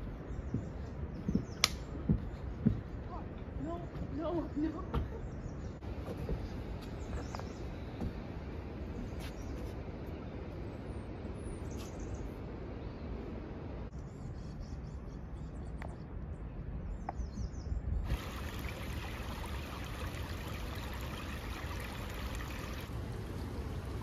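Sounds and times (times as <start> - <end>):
flowing water: 18.0 - 24.0.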